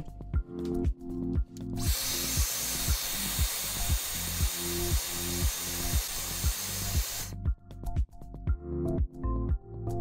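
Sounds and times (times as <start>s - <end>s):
background music with beat: 0.0s - 10.0s
hairdryer blowing: 1.8s - 7.3s.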